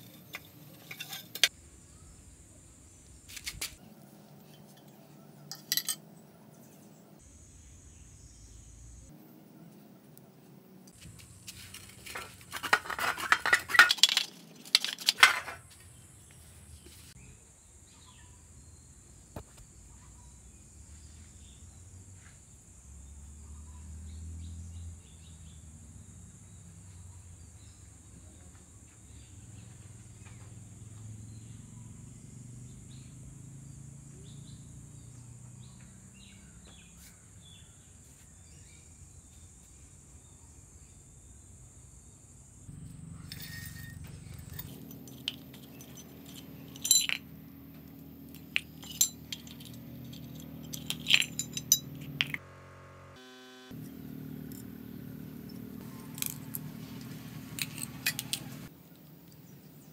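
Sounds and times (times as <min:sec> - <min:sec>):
metal parts clinking on tile: 0:00.0 - 0:01.5, 0:04.5 - 0:06.0, 0:11.5 - 0:15.6, 0:43.2 - 0:47.3, 0:47.9 - 0:52.4, 0:56.1 - 0:56.6, 0:57.6 - 0:58.5
low background hum: 0:42.5 - 0:53.0.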